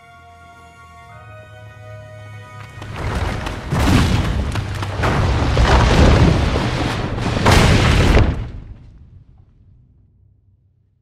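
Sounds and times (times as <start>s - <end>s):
cinematic rumbling and crashing: 2.8s - 10.8s.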